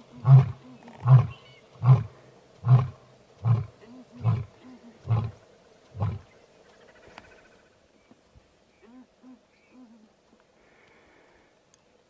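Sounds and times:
lion roaring with deep grunts: 0.1s - 6.3s.

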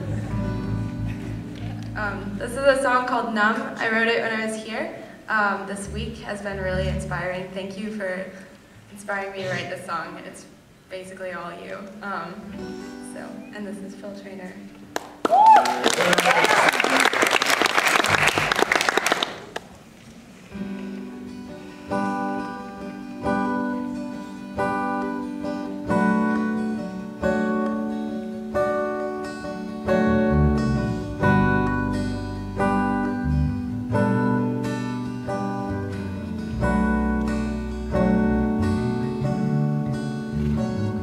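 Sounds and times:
electric bass guitar: 0.0s - 2.8s, 5.8s - 7.6s, 21.2s - 41.0s
acoustic guitar strumming chords: 0.0s - 3.3s, 20.6s - 41.0s
audience applause: 15.0s - 19.7s.

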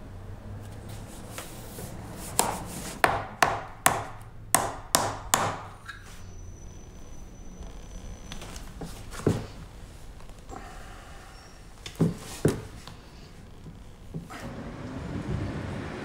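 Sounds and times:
hammer striking shoe sole: 2.4s - 5.8s.

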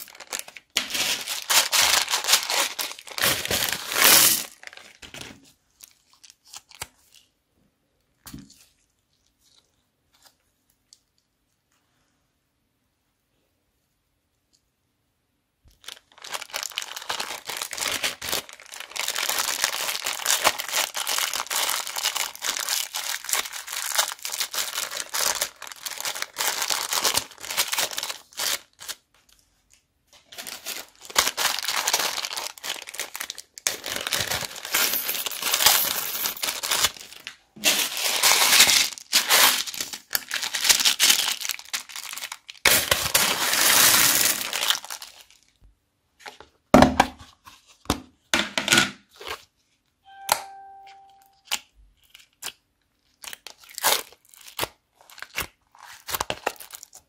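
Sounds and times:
plastic bags crinkling: 0.0s - 7.2s, 15.7s - 29.1s, 30.1s - 45.7s, 53.0s - 57.0s.

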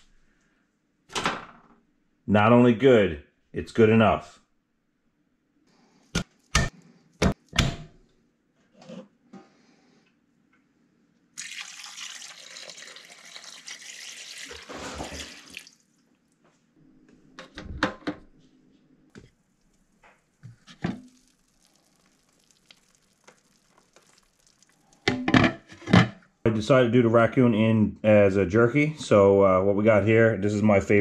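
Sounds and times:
liquid pouring and splashing: 11.4s - 16.0s, 19.6s - 25.4s.

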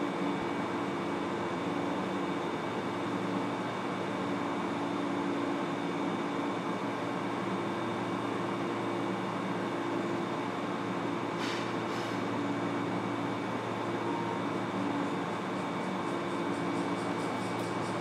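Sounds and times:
train car equipment hum: 0.0s - 18.0s
short hiss: 11.4s - 12.2s.

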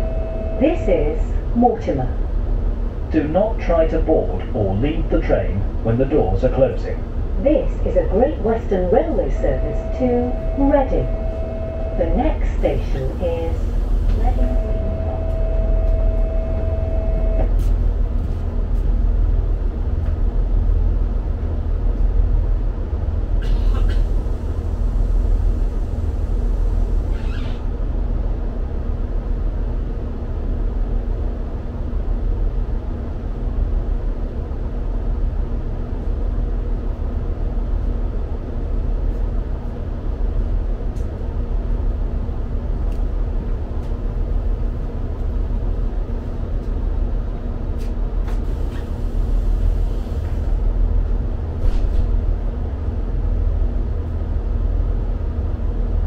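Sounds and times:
steady tone: 0.0s - 2.1s, 7.5s - 17.5s
train engine idling: 0.0s - 54.3s.

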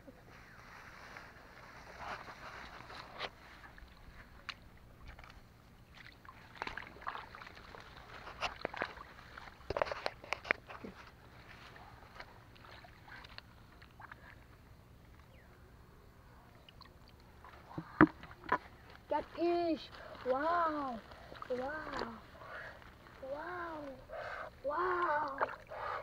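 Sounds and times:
hands scooping wet mud: 1.2s - 14.5s, 17.3s - 26.0s.

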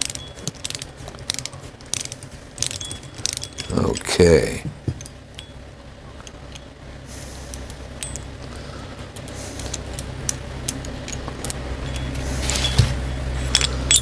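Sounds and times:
metal wrench clicks and clinks: 0.0s - 4.2s, 7.5s - 8.4s, 9.2s - 12.8s, 13.5s - 14.0s
low hum: 0.0s - 14.0s.

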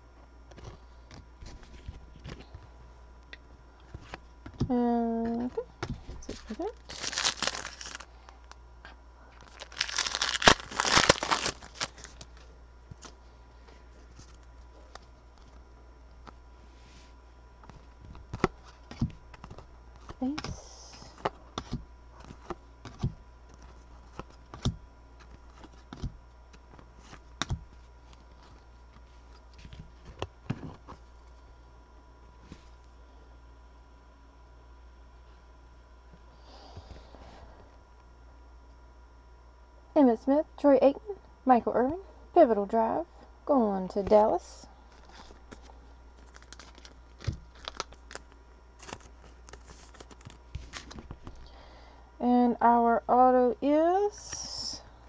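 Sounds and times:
low steady hum: 0.0s - 55.0s
cards rustling and clicking: 5.3s - 8.6s, 9.4s - 13.2s, 17.6s - 31.4s, 44.9s - 51.5s.

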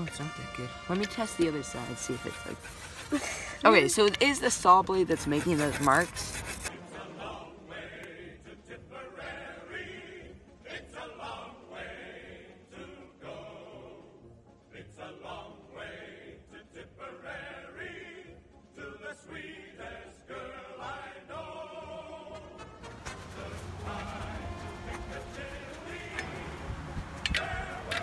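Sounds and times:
background music with choir singing: 6.6s - 28.0s.

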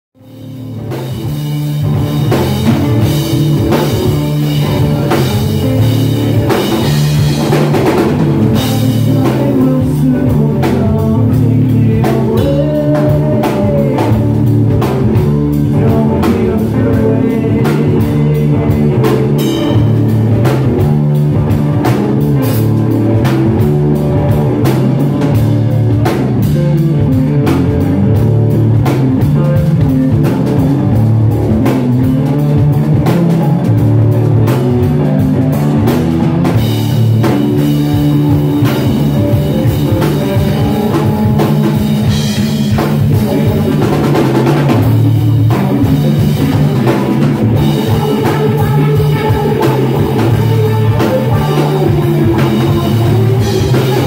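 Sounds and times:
electric bass: 0.1s - 54.0s
drum kit: 0.2s - 54.0s
electric guitar: 0.2s - 54.0s.

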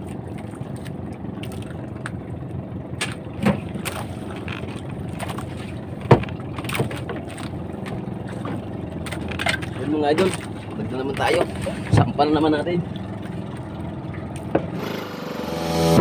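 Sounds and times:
boat engine running at low revs: 0.0s - 16.0s
knocks on wooden hull: 6.0s - 8.0s, 14.4s - 14.8s.

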